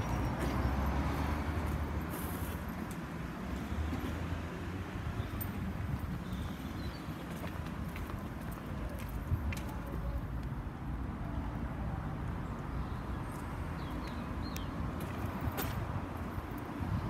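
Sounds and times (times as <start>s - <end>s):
distant traffic rumble: 0.0s - 17.0s.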